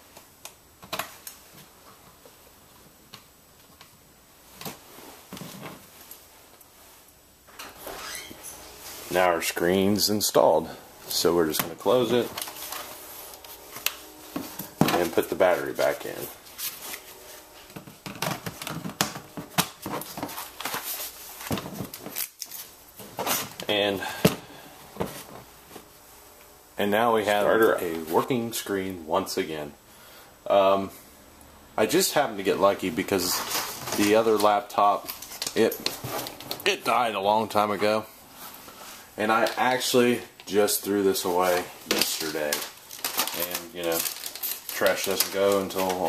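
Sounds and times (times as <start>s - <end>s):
laptop being handled: 17.7s - 23.7s.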